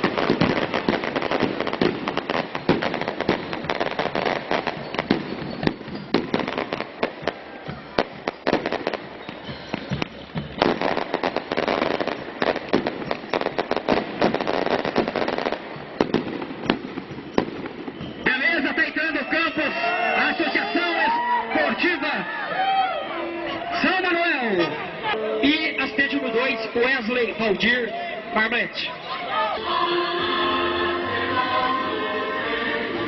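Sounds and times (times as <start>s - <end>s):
firecrackers cracking and popping: 0.0s - 19.1s.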